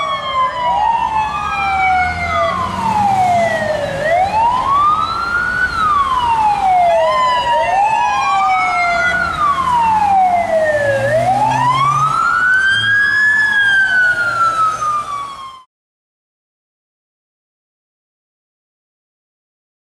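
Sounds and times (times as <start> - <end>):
ambulance siren wailing: 0.0 - 15.7
second siren tone: 0.0 - 15.7.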